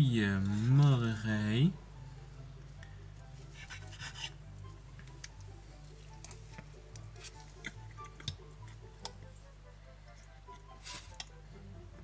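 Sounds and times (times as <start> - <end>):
quiet background music: 0.0 - 12.0
knife sawing through pancakes: 3.5 - 4.4.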